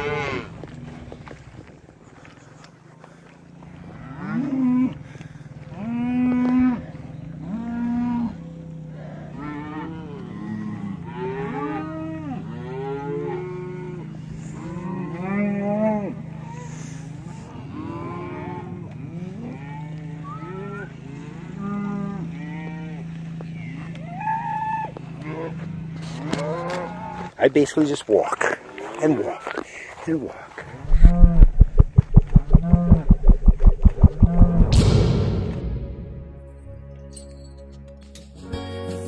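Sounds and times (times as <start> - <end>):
cows mooing: 5.7 - 16.6, 17.5 - 23.0
steady low drone: 30.8 - 37.2.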